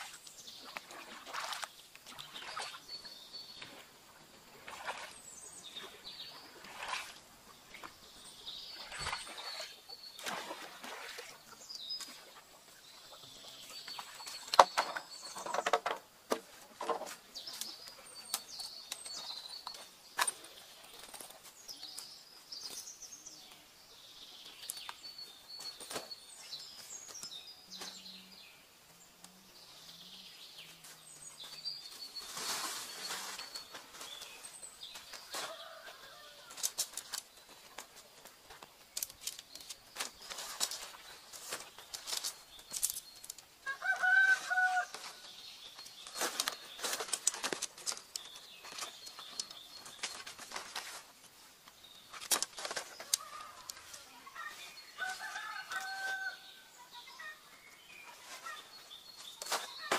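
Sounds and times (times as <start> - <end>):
small birds chirping: 0.0 - 59.9
footsteps in dry leaves: 31.4 - 37.5.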